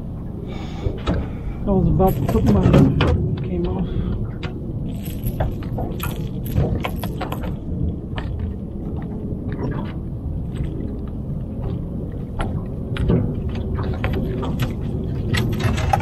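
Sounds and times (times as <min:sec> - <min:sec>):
low rumble of open water: 0:00.0 - 0:16.0
fishing tackle clicks and rattles: 0:01.9 - 0:03.5, 0:04.1 - 0:07.6, 0:13.0 - 0:16.0.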